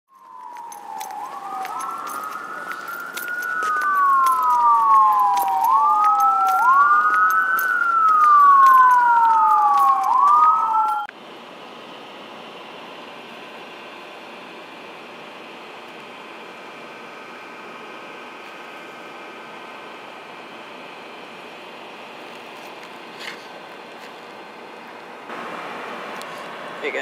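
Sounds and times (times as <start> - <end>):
emergency siren wailing: 0.1 - 11.1.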